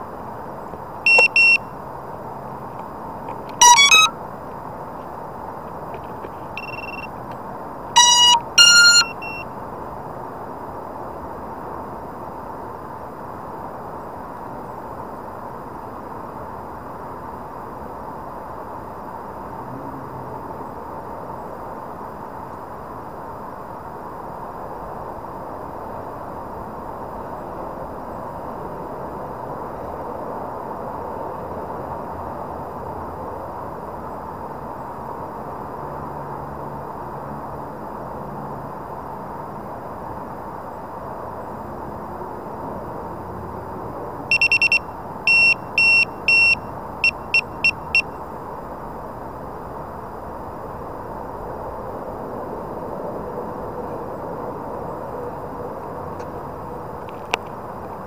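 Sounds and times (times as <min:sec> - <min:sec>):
faint steady tone: 0:00.0 - 0:05.1, 0:06.0 - 0:09.8, 0:44.3 - 0:51.0
electronic beeps: 0:01.1 - 0:01.7, 0:03.5 - 0:04.1, 0:06.6 - 0:07.1, 0:08.0 - 0:09.4, 0:44.3 - 0:48.1
rising electronic tone runs: 0:03.6 - 0:04.1.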